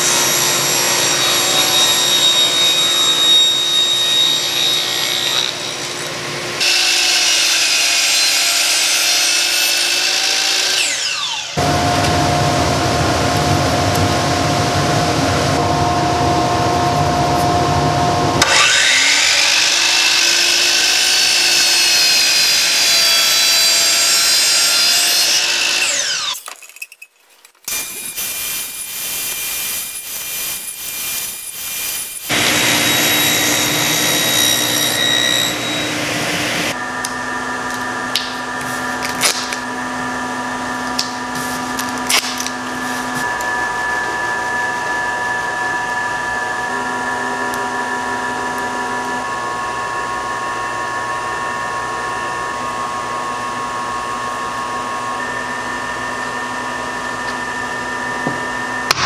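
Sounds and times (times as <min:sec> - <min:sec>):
table saw cutting plywood: 0:00.0 - 0:26.4, 0:27.7 - 0:59.0
motor spinning up and down: 0:10.0 - 0:13.5, 0:17.4 - 0:22.8, 0:25.2 - 0:26.4.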